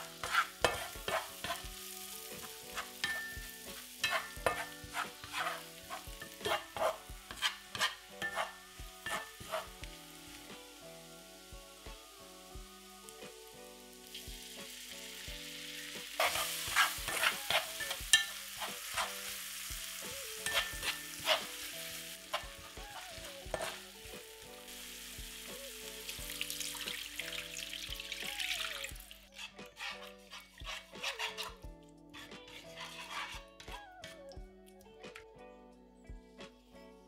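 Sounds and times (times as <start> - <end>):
garlic sizzling in oil: 0.0 - 31.6, 32.2 - 34.2
plastic spatula scraping pan: 0.1 - 1.6, 4.0 - 9.7, 16.2 - 18.0, 20.4 - 21.6, 23.5 - 23.8, 29.4 - 31.6, 32.2 - 34.2
liquid poured into hot pan: 26.1 - 29.3.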